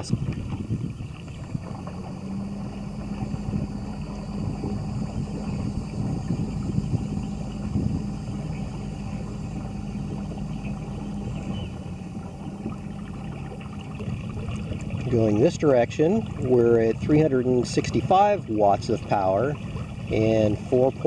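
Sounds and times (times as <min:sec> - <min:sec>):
electric trolling motor hum: 0:00.0 - 0:21.0
low rushing water noise: 0:00.0 - 0:21.0.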